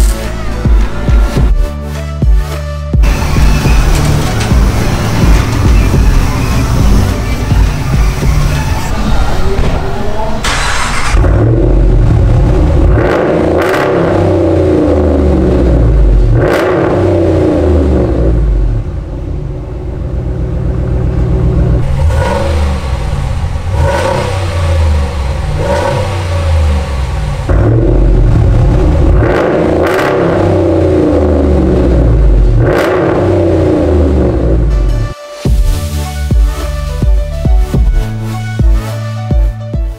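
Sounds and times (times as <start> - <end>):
engine idling: 3.0 - 9.6, 18.4 - 29.3
truck engine revving: 3.0 - 39.2.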